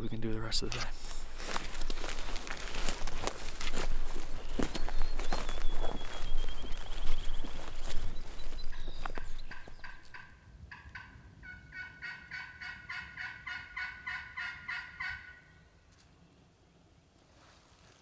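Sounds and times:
footsteps through grass: 0:00.9 - 0:10.2
turkey yelps: 0:09.5 - 0:15.6.

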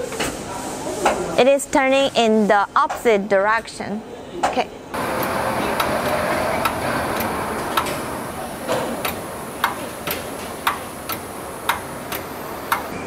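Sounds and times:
steady machine hum: 0:04.9 - 0:13.0
regular sharp clicks: 0:09.0 - 0:12.9.

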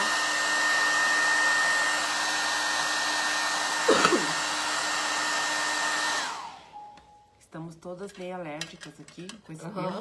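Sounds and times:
hair dryer running: 0:00.0 - 0:07.0.

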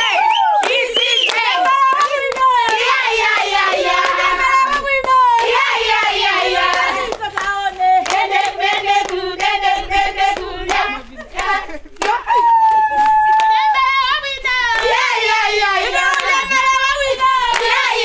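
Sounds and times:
hand clapping: 0:00.0 - 0:05.7, 0:06.6 - 0:09.6, 0:10.3 - 0:13.5, 0:15.9 - 0:16.7
women singing together: 0:00.0 - 0:18.0.

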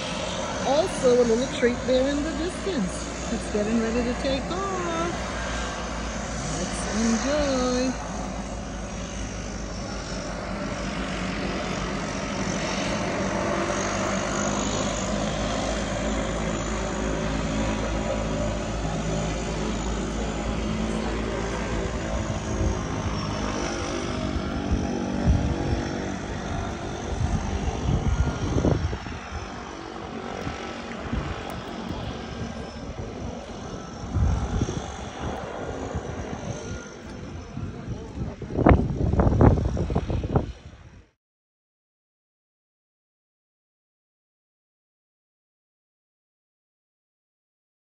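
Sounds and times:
propeller plane engines droning: 0:00.0 - 0:41.2
wind bumps on microphone: 0:22.2 - 0:29.6, 0:34.0 - 0:41.1.

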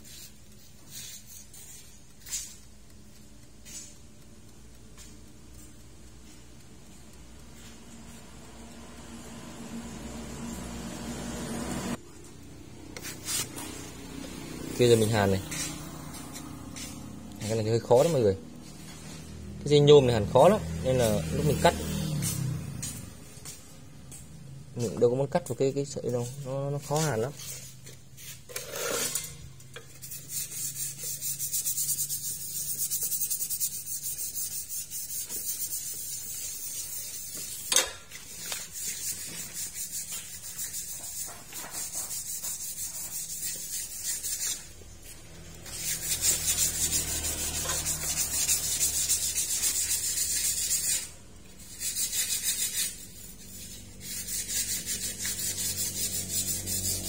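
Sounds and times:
scratchy hissing scrape: 0:00.0 - 0:02.7, 0:12.9 - 0:23.7, 0:24.8 - 0:57.0.

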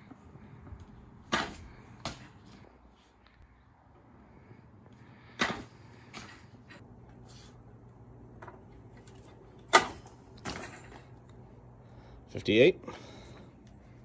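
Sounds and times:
baseballs smacking target: 0:01.2 - 0:02.6, 0:05.2 - 0:06.6.

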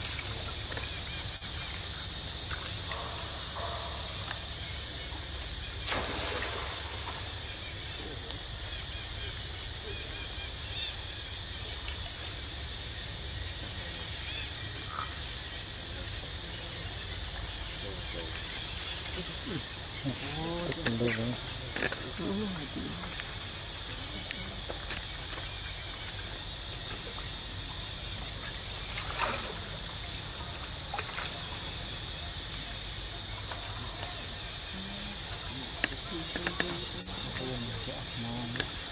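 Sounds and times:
water splashing and trickling: 0:00.0 - 0:38.9
loud splash: 0:05.8 - 0:07.3.

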